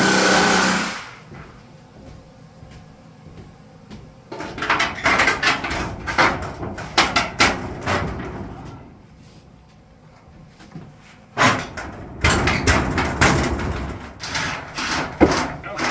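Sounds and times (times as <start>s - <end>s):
metal sheet rattling and clanking: 4.3s - 8.9s, 11.4s - 15.9s.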